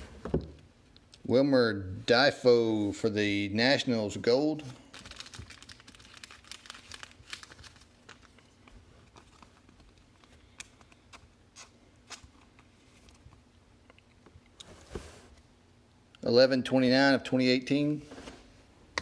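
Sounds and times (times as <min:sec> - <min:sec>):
plastic card sleeve crinkling: 0:04.8 - 0:13.4.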